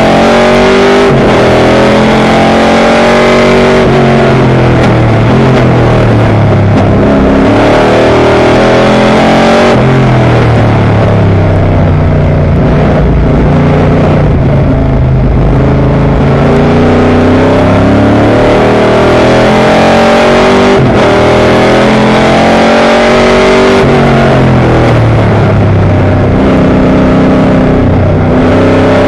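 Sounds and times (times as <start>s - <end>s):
race car engine revving: 0.0s - 29.0s.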